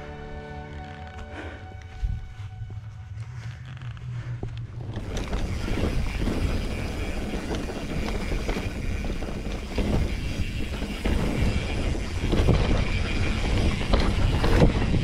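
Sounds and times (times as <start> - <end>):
bike tyres rolling: 2.4 - 15.0
bike knocking: 4.4 - 15.0
wind rushing over microphone: 4.4 - 15.0.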